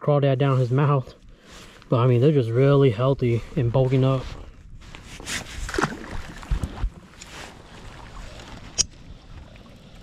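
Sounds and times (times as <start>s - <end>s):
wind: 0.0s - 10.0s
water noise: 3.3s - 10.0s
fish splashing into water: 5.7s - 6.5s.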